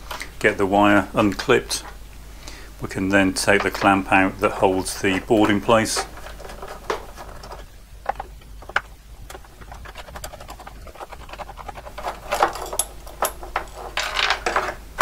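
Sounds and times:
light metal clicks and scrapes: 5.0s - 14.8s.

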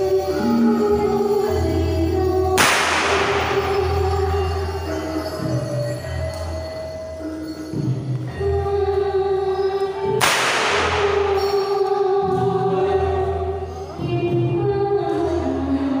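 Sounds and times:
gamelan music with singing: 0.0s - 16.0s
whip crack: 2.6s - 3.8s, 10.2s - 11.6s.

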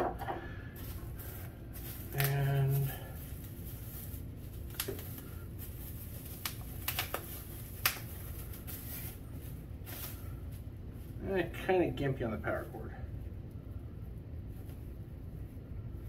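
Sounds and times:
packaging crinkling: 0.8s - 10.7s.

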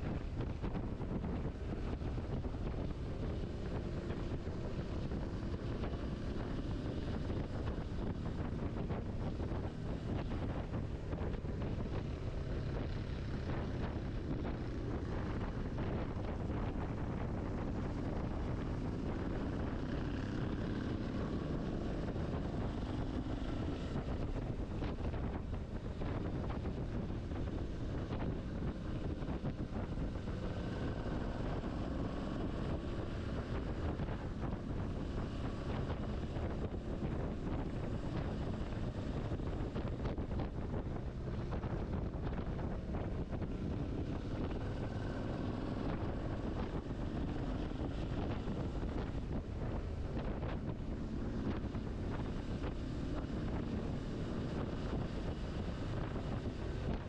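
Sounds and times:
motorcycle engine running: 0.0s - 57.0s
wind rushing over microphone: 0.0s - 57.0s.

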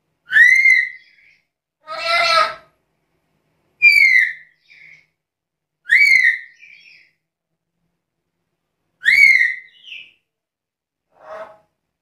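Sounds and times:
parrot calling: 0.2s - 2.7s, 3.8s - 5.1s, 5.8s - 7.1s, 9.0s - 10.2s.

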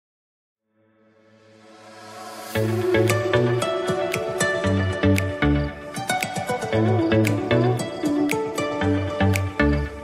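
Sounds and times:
electronic music with drums and bass: 2.5s - 10.0s.

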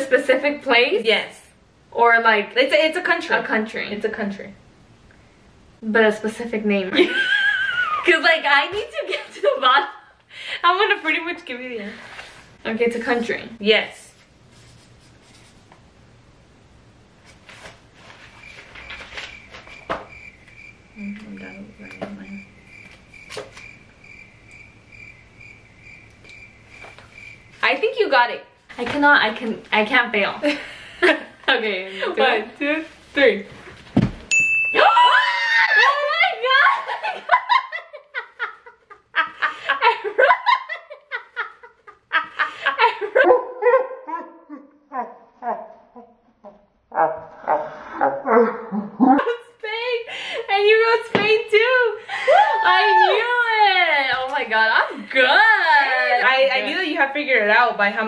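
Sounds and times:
women laughing loudly: 6.9s - 8.2s, 34.8s - 43.3s, 52.1s - 53.4s
paper handling: 17.2s - 20.1s, 22.8s - 23.7s.

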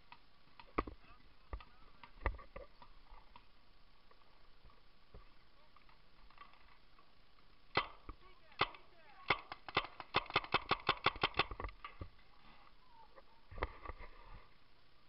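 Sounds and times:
paintball marker shots: 7.7s - 11.6s.

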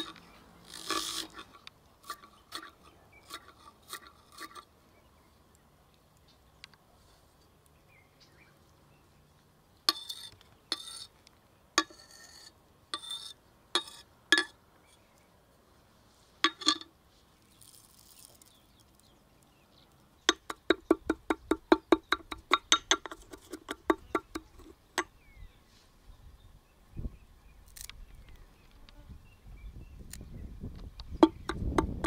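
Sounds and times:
cleaver knocking and scraping on stone: 9.9s - 11.1s, 11.8s - 14.6s, 20.3s - 25.1s, 31.1s - 32.0s
pestle pounding in mortar: 20.3s - 24.6s, 31.2s - 32.0s.

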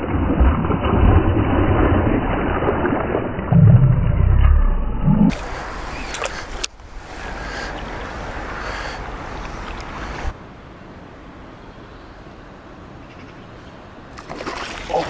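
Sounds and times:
rush of wind and water: 5.3s - 15.0s.

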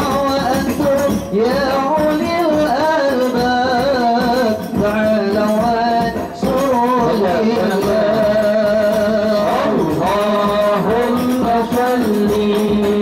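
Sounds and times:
frame drums beating: 0.0s - 13.0s
man singing into a microphone: 0.0s - 13.0s.

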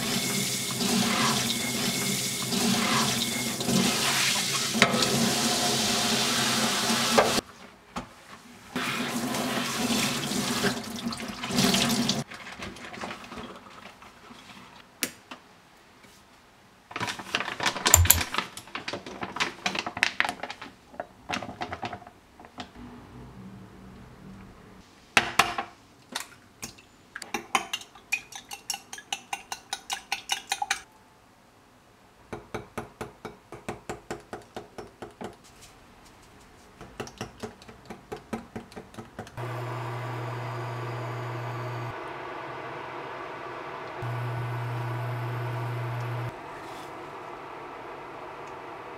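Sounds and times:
steady hum: 39.4s - 48.9s.

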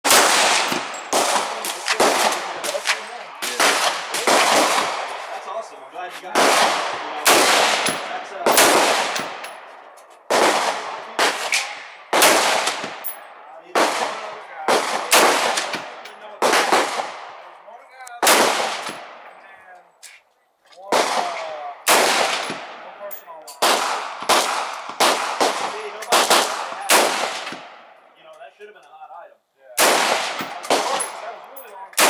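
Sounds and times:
rifle shots echoing: 0.0s - 5.4s, 6.3s - 17.6s, 18.2s - 19.4s, 20.9s - 28.0s, 29.8s - 32.0s.

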